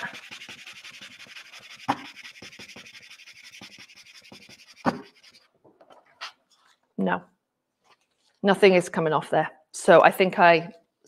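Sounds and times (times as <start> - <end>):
burnishing tool rubbing paper: 0.0 - 5.5.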